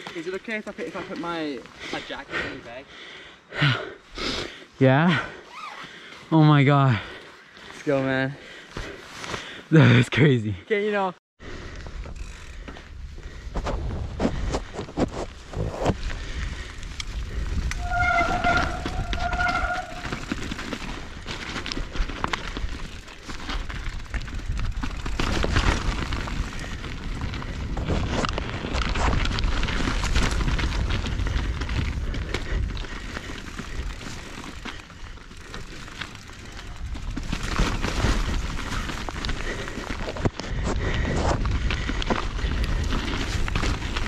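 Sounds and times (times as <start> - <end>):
tyre and wind rumble: 11.8 - 44.0
bike knocking and rattling: 11.9 - 44.0
short high squeal: 17.8 - 20.1.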